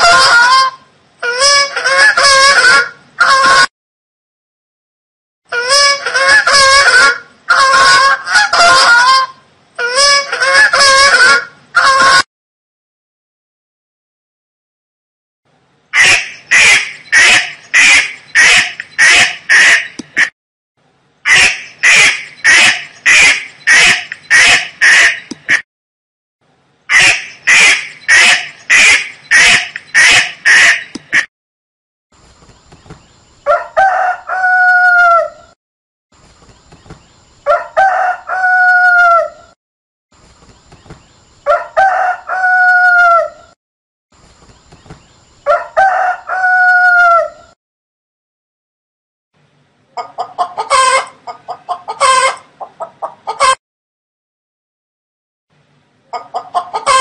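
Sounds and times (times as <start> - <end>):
duck quacking: 0.0 - 3.7, 5.5 - 12.2, 16.0 - 20.3, 21.3 - 25.6, 26.9 - 31.3, 56.2 - 57.0
rooster crowing: 33.5 - 35.6, 37.5 - 39.5, 41.5 - 43.6, 45.5 - 47.6.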